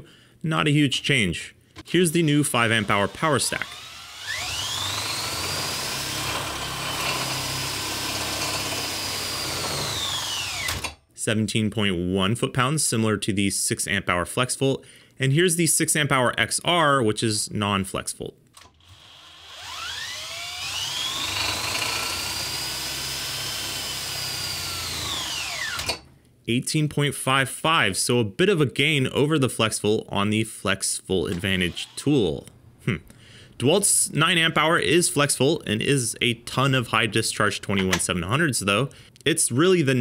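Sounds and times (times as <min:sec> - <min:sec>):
drill motor whine: 0:02.8 - 0:10.9, 0:18.8 - 0:26.0, 0:31.3 - 0:32.0.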